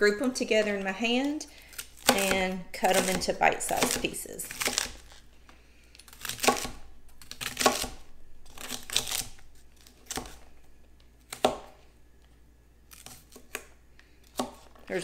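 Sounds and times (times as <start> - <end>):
knife chopping on cutting board: 2.0 - 5.0, 7.4 - 8.0, 14.3 - 14.7.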